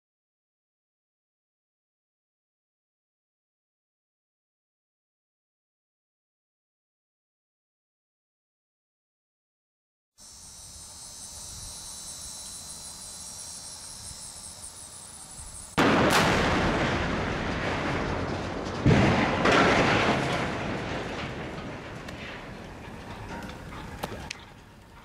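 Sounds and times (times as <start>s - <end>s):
faint high-pitched buzz: 10.2s - 15.8s
steel boom crashing to ground: 15.4s - 23.7s
loud explosive blast: 15.7s - 22.6s.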